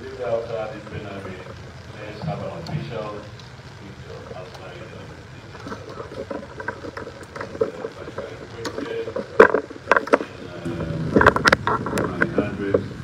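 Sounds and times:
background hiss: 0:00.0 - 0:13.0
murmur of voices: 0:00.0 - 0:13.0.

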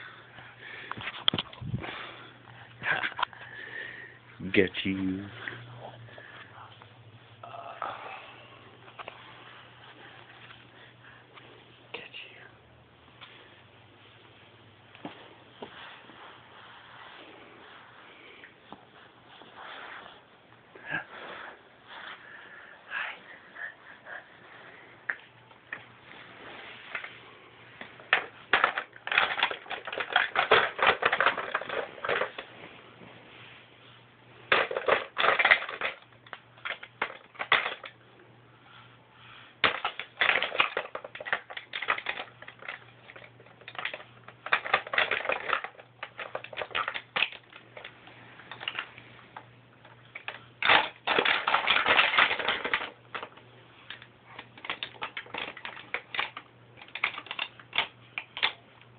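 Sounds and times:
plastic toys clicking and clattering: 0:27.8 - 0:32.5, 0:34.5 - 0:38.0, 0:39.6 - 0:49.0, 0:49.8 - 0:58.6.

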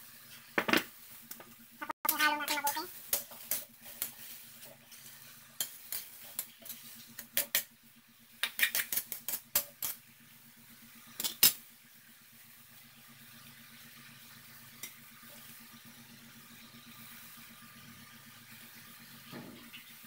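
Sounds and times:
metal spatula scraping a wok: 0:02.1 - 0:07.6.

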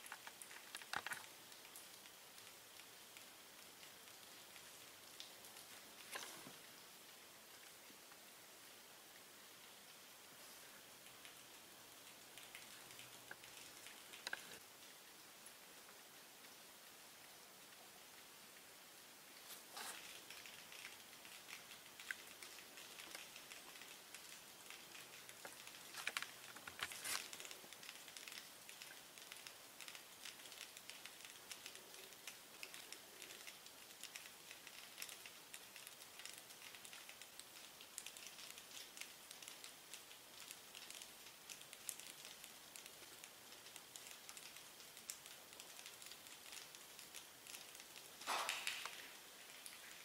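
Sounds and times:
snow foam crackling and fizzing: 0:19.3 - 0:50.0.

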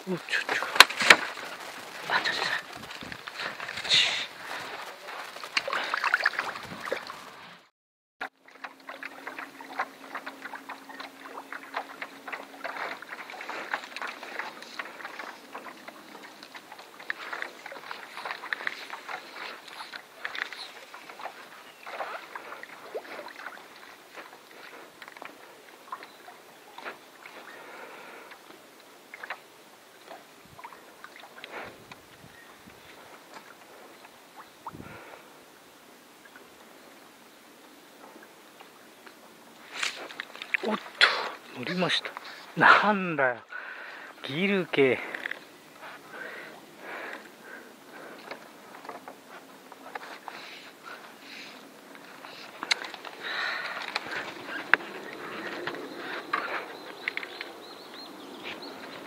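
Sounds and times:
water ticking and patter: 0:00.0 - 0:07.5, 0:08.2 - 0:36.8, 0:37.4 - 0:59.0
water splashing: 0:00.0 - 0:35.4, 0:38.0 - 0:59.0
soft hiss: 0:25.4 - 0:53.8.

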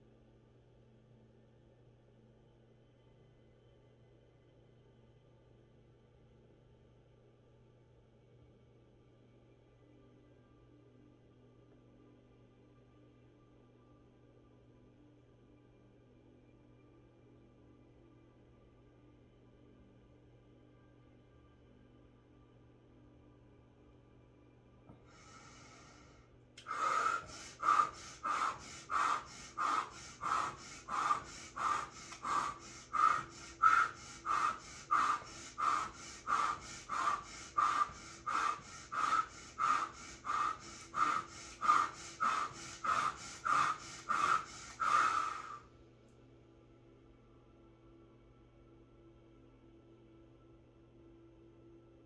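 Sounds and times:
woman breathing forcefully: 0:25.0 - 0:45.6.

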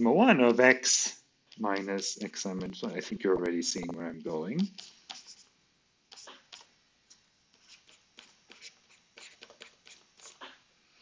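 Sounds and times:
stylus ticking on tablet screen: 0:01.5 - 0:03.6.

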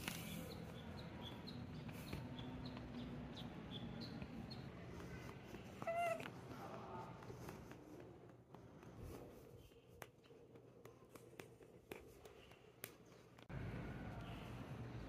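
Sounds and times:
cat meowing: 0:05.8 - 0:06.3.

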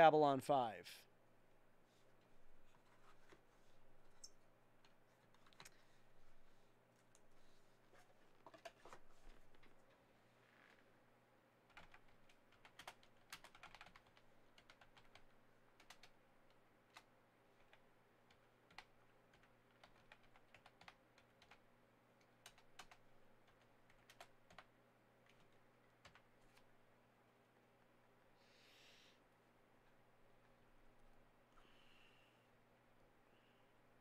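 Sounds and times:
keyboard typing: 0:11.7 - 0:26.7.

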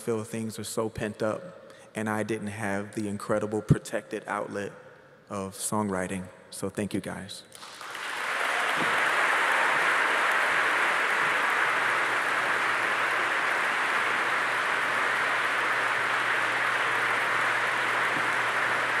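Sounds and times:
large audience applauding: 0:07.6 - 0:19.0.

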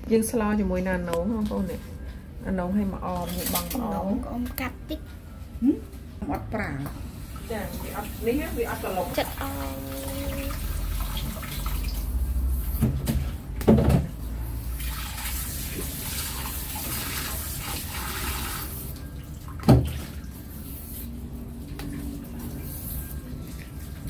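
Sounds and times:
water running and splashing: 0:07.1 - 0:12.6, 0:14.5 - 0:24.0.

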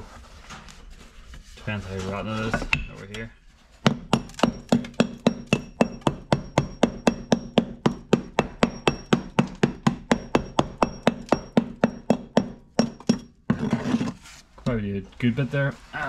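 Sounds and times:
hammer knocking on rusty steel: 0:03.8 - 0:13.6.

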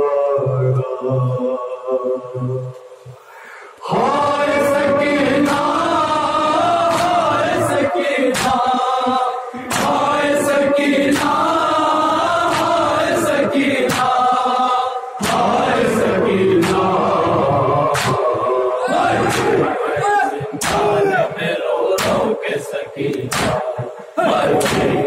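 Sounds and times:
men chanting together: 0:03.8 - 0:25.0
chest-beating slaps: 0:06.9 - 0:07.2, 0:08.3 - 0:08.7, 0:09.7 - 0:10.0, 0:11.1 - 0:11.5, 0:12.4 - 0:12.9, 0:13.8 - 0:14.3, 0:15.2 - 0:15.7, 0:16.6 - 0:16.9, 0:17.9 - 0:18.3, 0:19.1 - 0:19.7, 0:20.6 - 0:21.0, 0:21.9 - 0:22.3, 0:23.0 - 0:25.0.

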